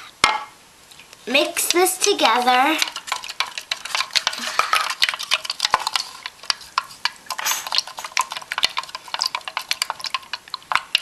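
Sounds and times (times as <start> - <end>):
wooden stick scraping plastic cup: 1.7 - 11.0.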